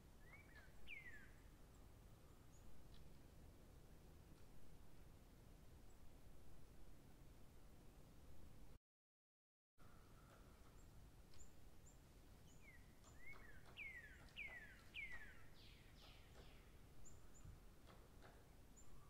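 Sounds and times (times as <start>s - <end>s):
faint whistled bird song: 0.0s - 3.2s, 9.8s - 19.0s.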